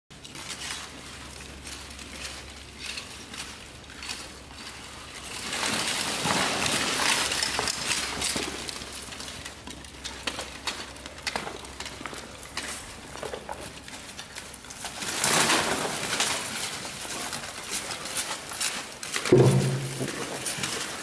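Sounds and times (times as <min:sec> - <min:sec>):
plate armour clinking and rattling: 0:01.6 - 0:21.0.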